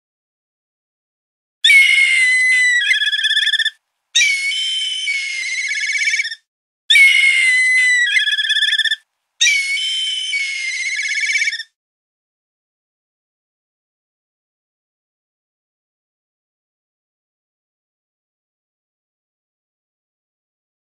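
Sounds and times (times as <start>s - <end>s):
bird of prey whistling trill call: 1.6s - 11.8s.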